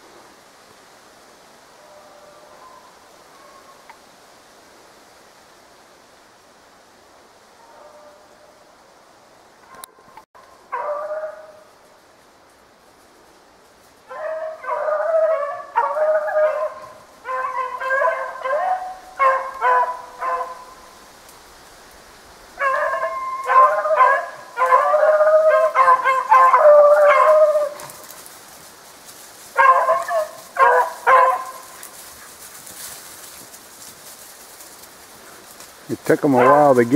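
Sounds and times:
dogs baying: 10.7s - 11.6s, 14.1s - 20.8s, 22.6s - 28.2s, 29.6s - 32.9s, 36.1s - 36.9s.

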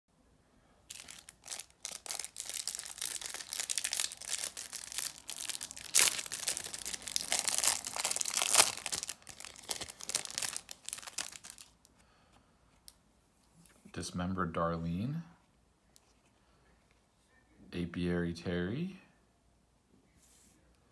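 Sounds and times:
plastic wrapper ripping: 0.9s - 11.8s
plastic wrapper crinkling: 0.9s - 11.9s.

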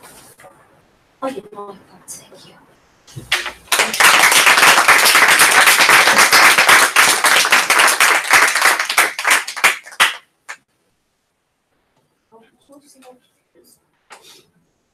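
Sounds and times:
audience applauding: 3.3s - 10.6s.

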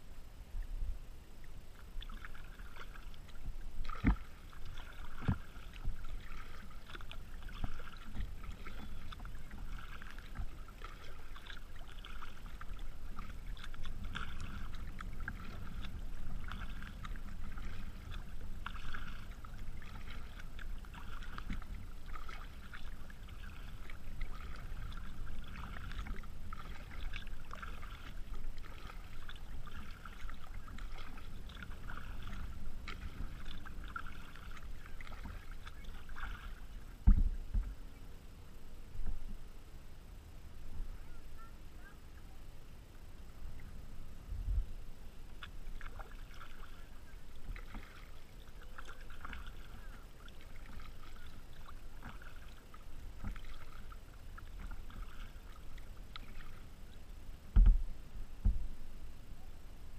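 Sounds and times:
water lapping against kayak hull: 0.0s - 59.9s.

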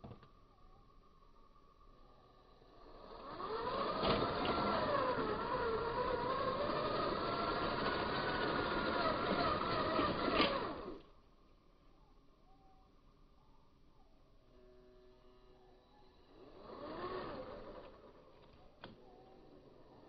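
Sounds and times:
electric motors whining: 1.9s - 11.2s, 14.4s - 20.0s.

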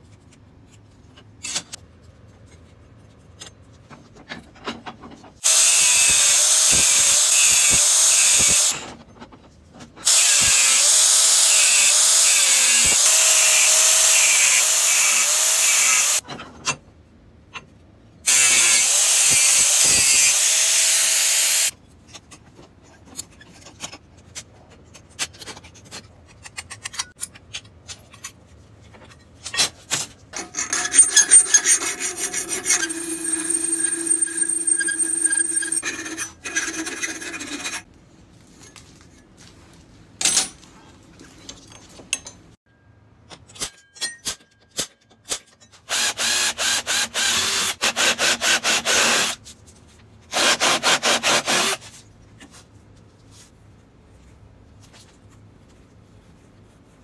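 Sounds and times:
power saw cutting steel: 5.4s - 8.9s, 10.0s - 16.2s, 18.3s - 21.7s, 30.4s - 37.8s
metal scraping: 29.0s - 37.9s.

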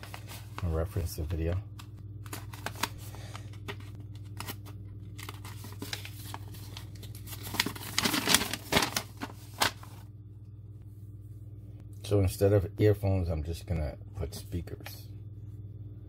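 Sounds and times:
paper rustling and crinkling: 0.0s - 10.0s
low steady hum: 0.0s - 16.0s.

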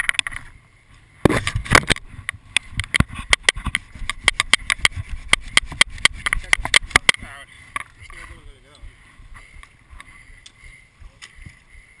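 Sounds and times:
sharp snaps and clicks of twigs: 1.2s - 8.2s.

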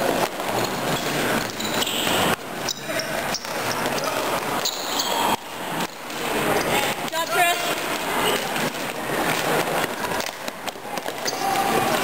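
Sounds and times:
short high squeaks: 0.9s - 5.4s.

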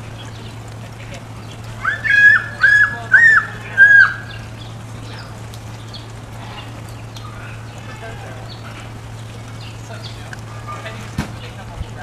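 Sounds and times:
steady low hum: 0.0s - 12.0s
short high bird calls: 1.8s - 4.6s.

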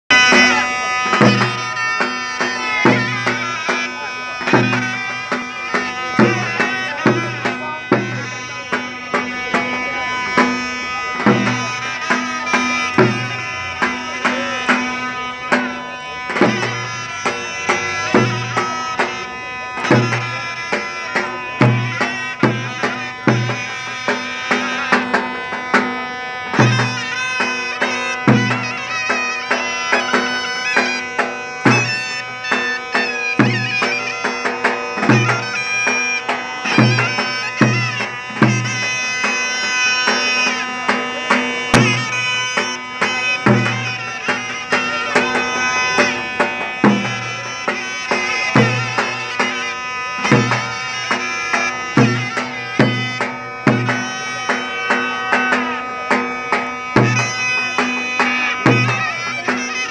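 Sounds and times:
heavy drum beats: 0.1s - 59.9s
reedy wind melody: 0.1s - 59.9s.

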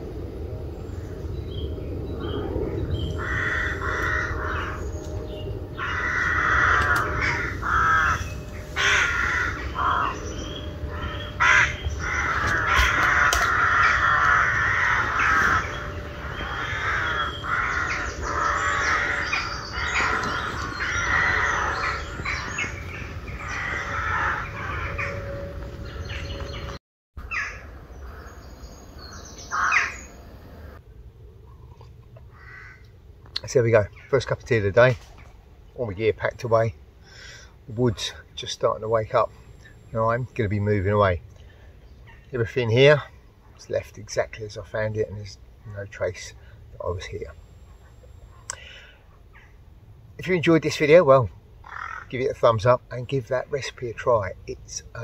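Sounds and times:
crows cawing: 2.2s - 26.6s, 27.2s - 28.4s, 29.1s - 30.8s, 32.3s - 32.9s, 37.0s - 37.5s, 48.3s - 49.6s, 51.6s - 52.4s.

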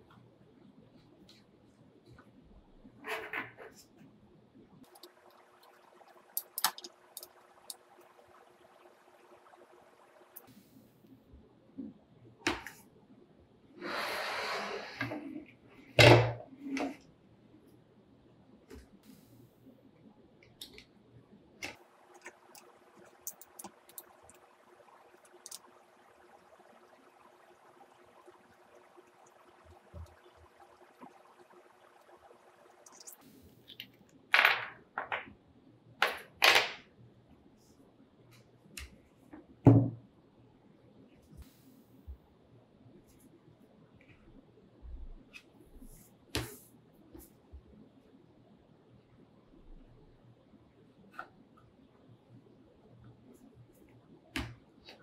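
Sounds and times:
bow limb scraping slide: 13.8s - 15.4s
dull thump on table: 39.7s - 40.0s.

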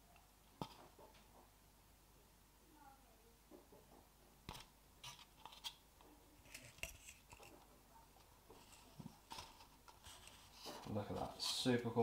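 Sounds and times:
fingers scraping and tapping plastic: 3.5s - 11.2s.

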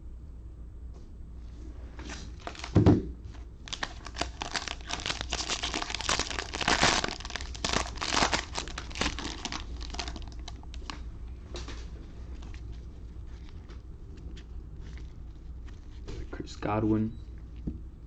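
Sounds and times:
card pack wrapper crinkling: 2.2s - 11.0s.

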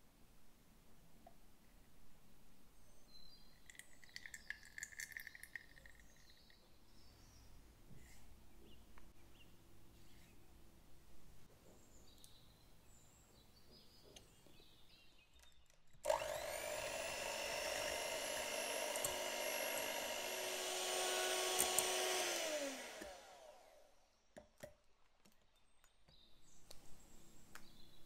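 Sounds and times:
electric hand mixer whirring: 16.0s - 24.0s.

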